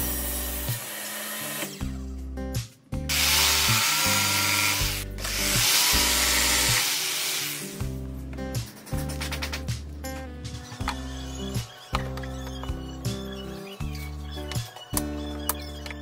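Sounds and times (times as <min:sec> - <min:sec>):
jigsaw cutting plywood: 0:00.0 - 0:01.8, 0:03.1 - 0:07.8
background music: 0:00.0 - 0:16.0.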